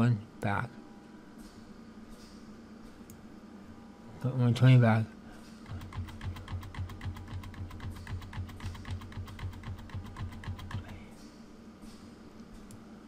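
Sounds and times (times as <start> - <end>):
keyboard key tapping: 5.7 - 11.0.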